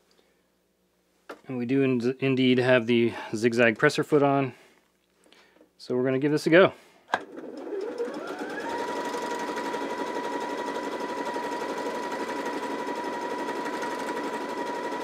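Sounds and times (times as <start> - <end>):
sewing machine running: 7.2 - 15.0.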